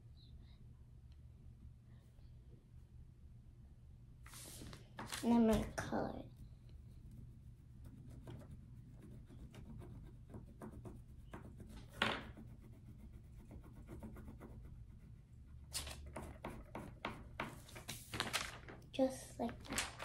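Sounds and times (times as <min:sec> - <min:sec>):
scribbling on paper: 0:06.2 - 0:17.7.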